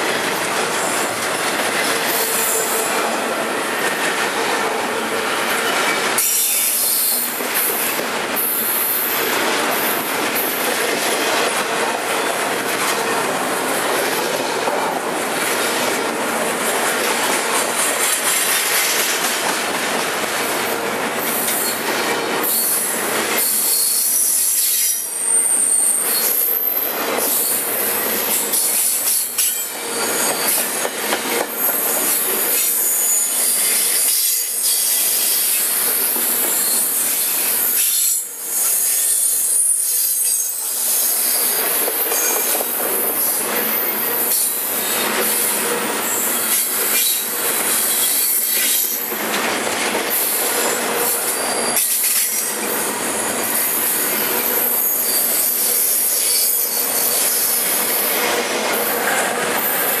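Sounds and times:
train wheels clattering on rails: 0:00.0 - 1:00.0.

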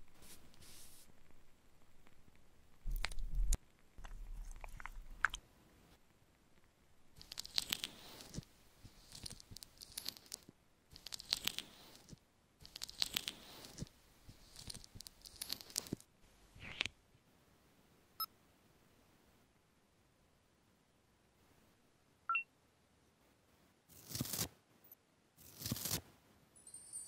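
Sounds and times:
sticky wax spatula strokes: 0:00.0 - 0:01.3, 0:07.2 - 0:16.8.

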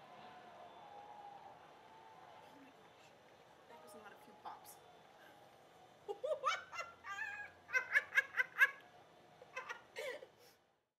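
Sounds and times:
woman cackling laugh: 0:06.1 - 0:08.8, 0:09.5 - 0:10.3.

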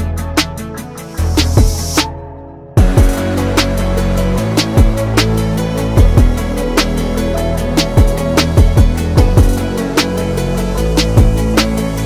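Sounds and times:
bass and keyboard notes: 0:00.0 - 0:12.0
deep kick drums: 0:02.8 - 0:03.3, 0:04.7 - 0:05.2, 0:06.0 - 0:06.5, 0:07.9 - 0:09.7, 0:11.2 - 0:11.5.

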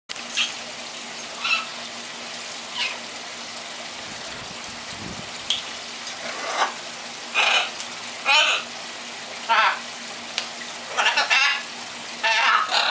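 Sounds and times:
parrots squawking: 0:01.4 - 0:01.8, 0:02.7 - 0:03.1, 0:06.2 - 0:08.7, 0:09.5 - 0:09.9, 0:10.9 - 0:12.9.

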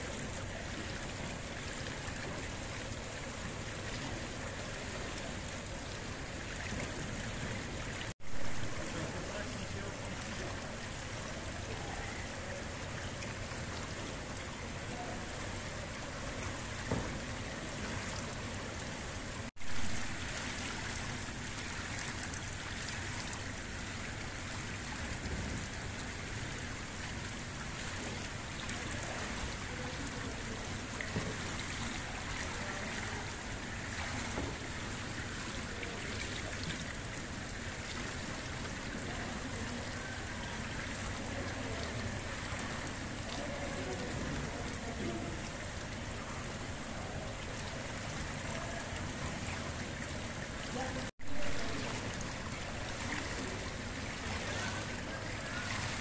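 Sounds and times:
rushing and trickling water: 0:00.0 - 0:56.0.

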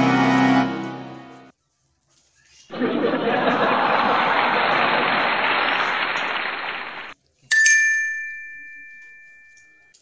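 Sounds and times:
bright chime: 0:07.5 - 0:10.0.

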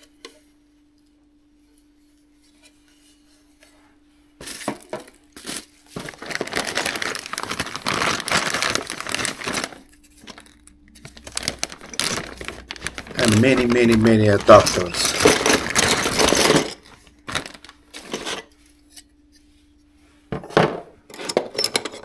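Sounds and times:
plastic packaging crinkling: 0:05.2 - 0:18.5.

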